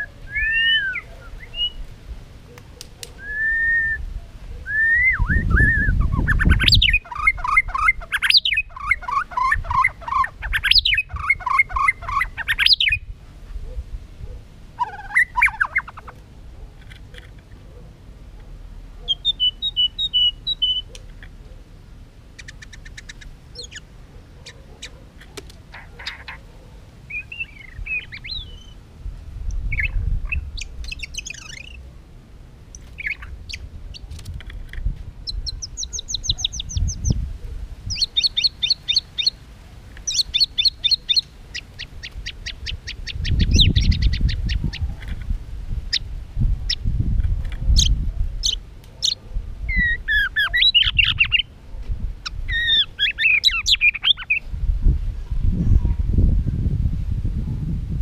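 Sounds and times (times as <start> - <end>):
songbird singing whistled phrases: 0.0 - 1.8, 3.2 - 13.1, 19.1 - 21.0, 27.1 - 28.8, 29.7 - 31.9, 35.2 - 37.2, 37.9 - 39.4, 40.0 - 44.8, 47.7 - 51.5, 52.2 - 54.4.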